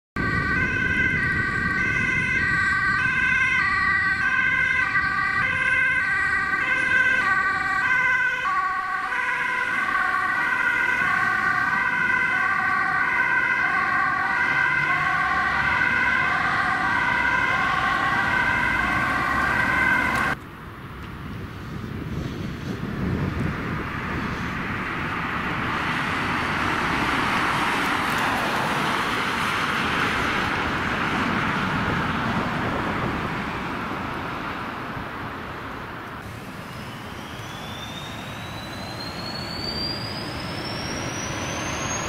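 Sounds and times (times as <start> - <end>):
two-tone ambulance siren: 0.2 - 20.4, 36.2 - 42.0
traffic noise: 0.2 - 42.0.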